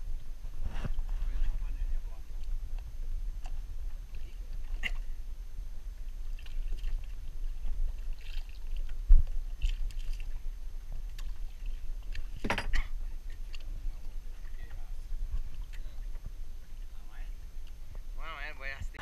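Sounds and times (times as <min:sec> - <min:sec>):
low wind rumble: 0:00.0 - 0:19.0
water sloshing against boat: 0:00.1 - 0:19.0.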